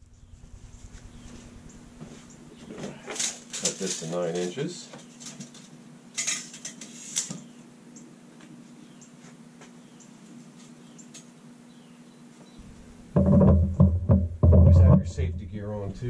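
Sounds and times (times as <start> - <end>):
steady low hum: 0.0 - 4.9, 11.4 - 16.0.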